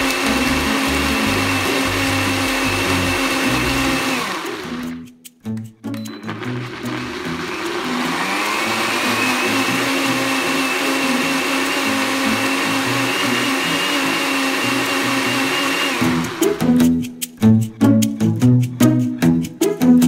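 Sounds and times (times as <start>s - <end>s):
blender motor whine: 0.0s - 5.0s, 6.2s - 16.6s.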